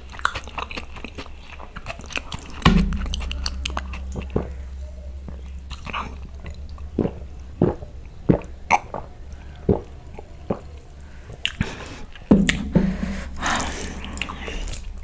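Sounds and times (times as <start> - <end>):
low throaty sound: 1.8 - 15.0.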